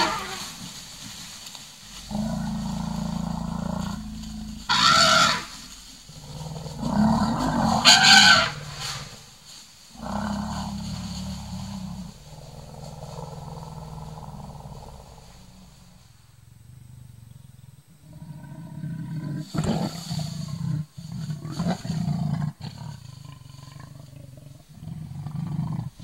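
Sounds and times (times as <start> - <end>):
deep growling rumbles: 0.0 - 26.0
shrill blasts: 7.5 - 9.2.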